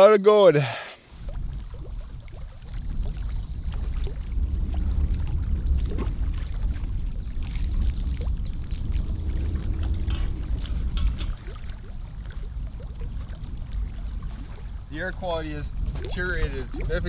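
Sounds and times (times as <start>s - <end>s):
waves lapping against rock: 1.1s - 17.0s
wind rumbling on microphone: 1.1s - 17.0s.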